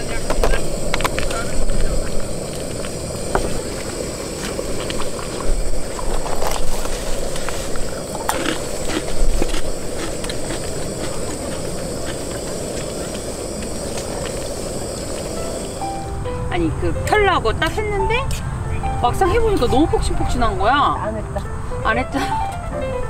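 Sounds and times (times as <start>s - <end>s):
steady hiss: 0.0s - 17.9s.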